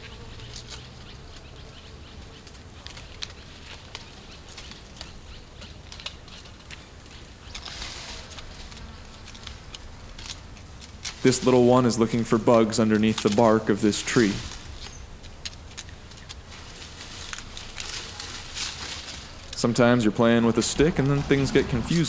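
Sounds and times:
hissing rustle: 0.0 - 22.0
small clicks and rustles: 0.3 - 11.3, 14.2 - 19.6.

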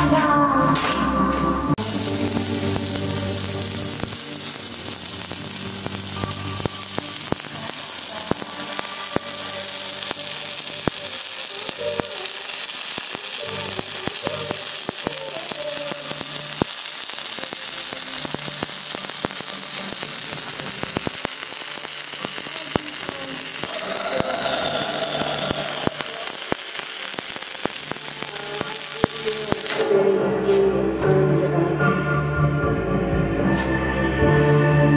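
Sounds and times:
welding arc crackling hiss: 1.8 - 30.0.

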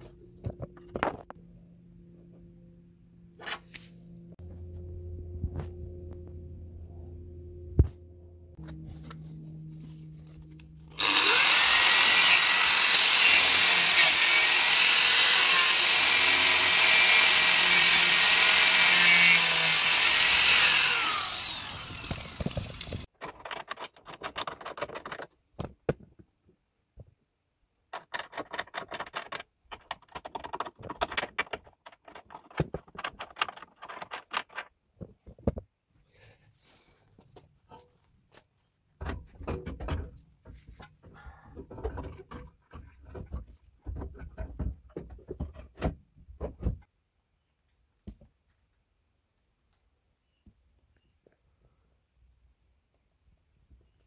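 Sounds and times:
power tool hissing and whining: 11.0 - 23.1.

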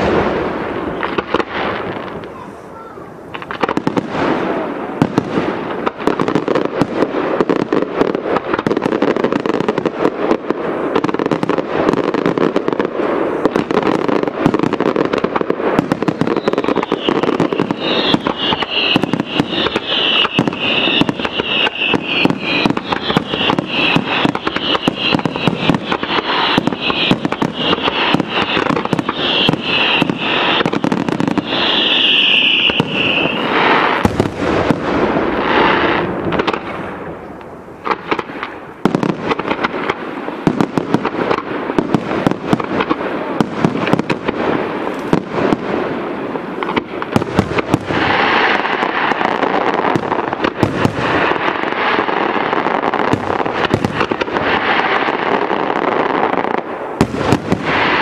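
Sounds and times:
fireworks bursts and crackling: 0.0 - 58.0.

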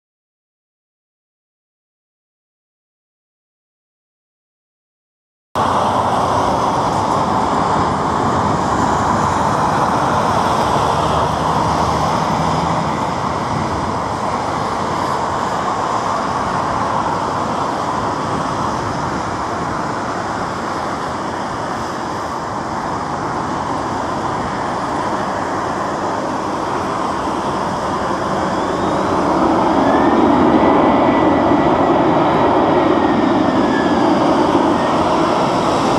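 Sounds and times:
jet engines rushing: 5.6 - 35.9.

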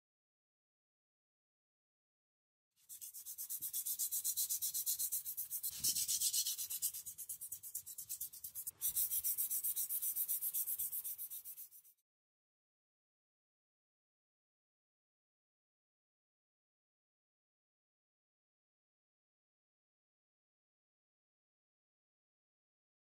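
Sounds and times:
sandpaper sanding wood: 2.8 - 11.9.

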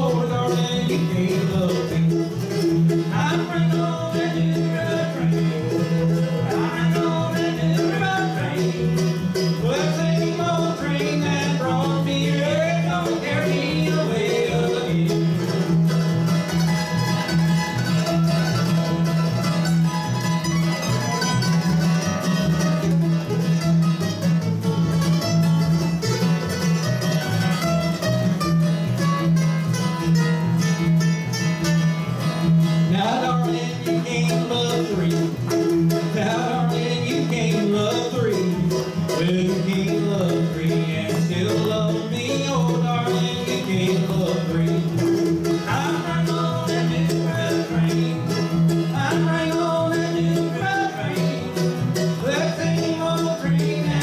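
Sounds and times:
person singing lead vocal: 0.0 - 2.4, 3.1 - 15.5, 32.9 - 45.0, 45.6 - 54.0
bluegrass band playing: 0.0 - 54.0.

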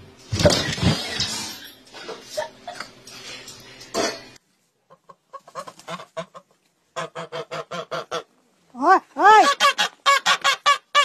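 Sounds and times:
geese calling: 4.9 - 8.4, 9.2 - 11.0.

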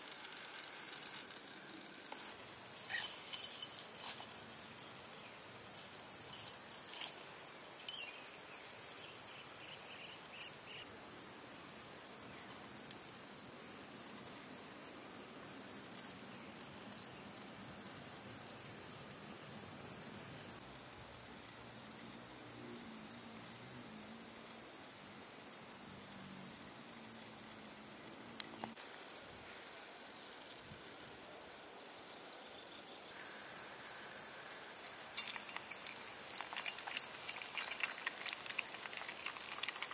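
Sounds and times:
campfire crackling: 0.0 - 7.9, 34.6 - 39.9
insects chirping: 0.0 - 39.9.

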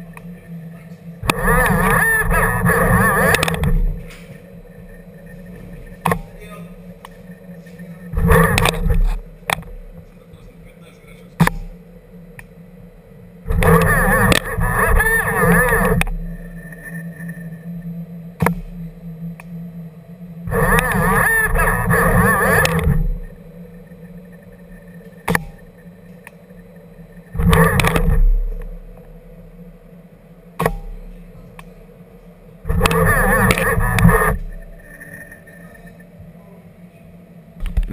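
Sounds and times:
low steady hum: 0.0 - 37.9
sharp clicks: 1.2 - 4.0, 8.2 - 9.8, 13.5 - 16.7, 20.5 - 23.3, 27.4 - 29.1, 32.7 - 35.2
robot arm servos whining: 1.2 - 10.0, 13.4 - 18.8, 20.4 - 29.6, 32.6 - 36.1.

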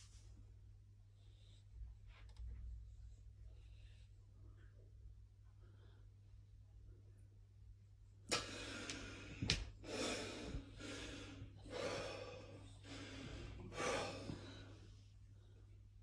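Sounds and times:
man breathing hard: 8.3 - 15.8.

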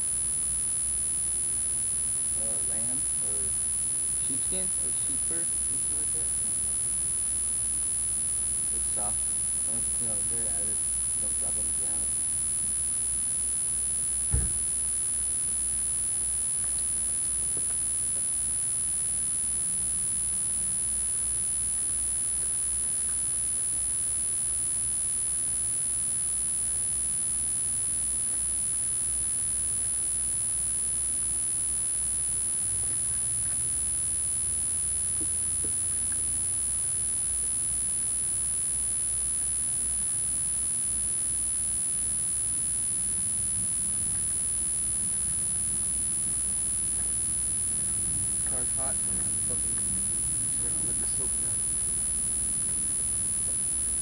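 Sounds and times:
high-pitched whine: 0.0 - 54.0
thump: 14.3 - 14.7.

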